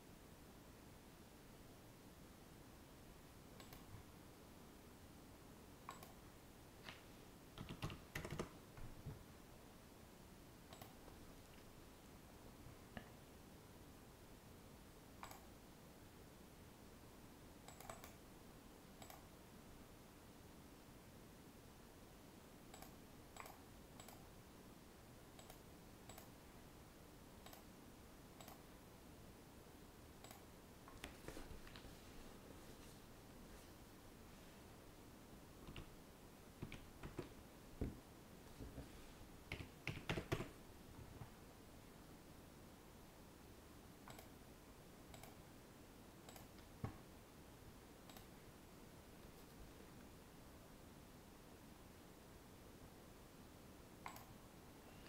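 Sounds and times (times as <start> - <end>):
low room hiss: 0.0 - 55.0
computer mouse clicks: 3.6 - 4.0, 5.8 - 6.2, 7.6 - 8.6, 10.7 - 11.2, 15.2 - 15.6, 17.6 - 18.2, 19.0 - 19.3, 22.7 - 24.3, 25.4 - 26.4, 27.4 - 27.7, 28.4 - 28.7, 30.2 - 31.9, 35.6 - 36.0, 39.5 - 40.6, 44.0 - 44.4, 45.1 - 45.4, 46.2 - 46.7, 48.0 - 48.4, 54.0 - 54.4
keyboard keys clicking: 7.6 - 8.6, 36.6 - 37.4, 39.5 - 40.6.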